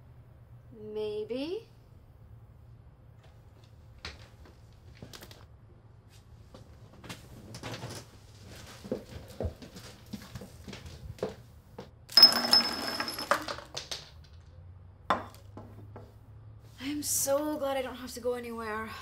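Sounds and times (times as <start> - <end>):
glasses and bottles clinking: 12.1 - 13.8.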